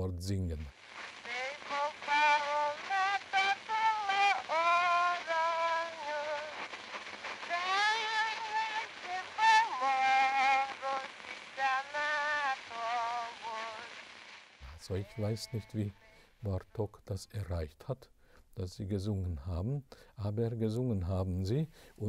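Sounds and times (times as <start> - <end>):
woman singing unaccompanied: 1.2 - 6.6, 7.4 - 14.0.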